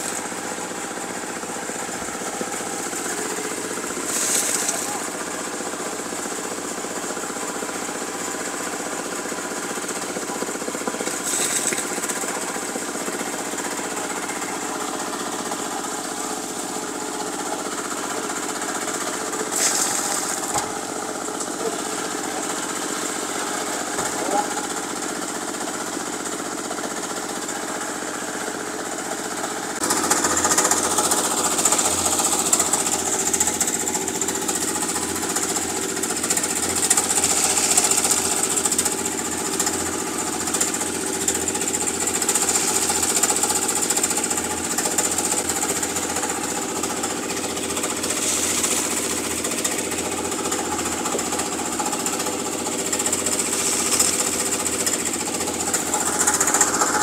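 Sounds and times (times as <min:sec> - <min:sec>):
machinery engine rattling and knocking: 0:00.0 - 0:57.0
hiss: 0:04.0 - 0:05.1, 0:36.7 - 0:39.0, 0:41.8 - 0:45.2, 0:47.8 - 0:49.5, 0:52.8 - 0:56.1.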